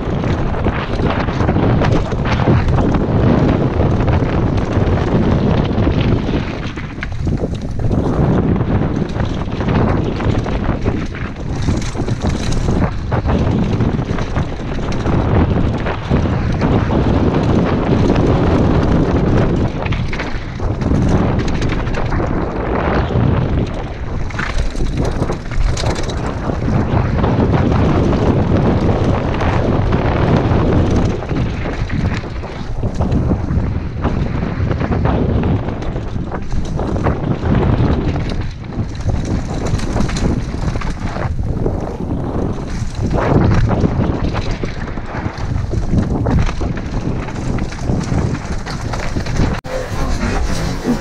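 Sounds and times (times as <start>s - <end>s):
bike rattling over bumps: 0.0s - 51.0s
wind buffeting microphone: 0.0s - 51.0s
tyres rolling over dirt: 47.1s - 51.0s.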